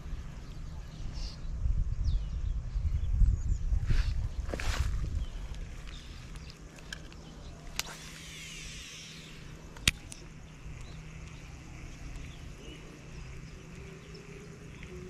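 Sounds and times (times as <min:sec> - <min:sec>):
steady low hum: 0:00.0 - 0:15.0
sharp reel clicks: 0:05.5 - 0:12.6
fishing reel whirring: 0:05.7 - 0:15.0.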